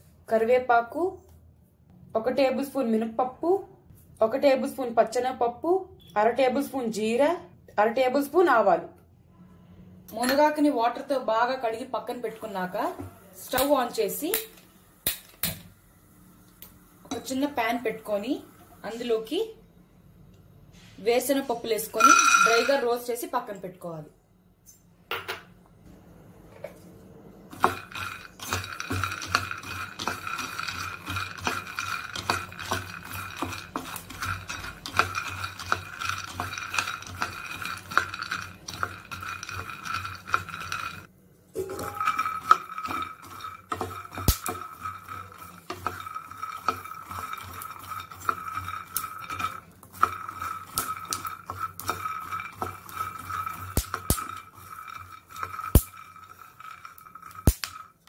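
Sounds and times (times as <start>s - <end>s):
cooktop electrical whine and hum: 0.0s - 58.0s
nuts clattering in a pan: 22.0s - 22.8s, 27.5s - 58.0s.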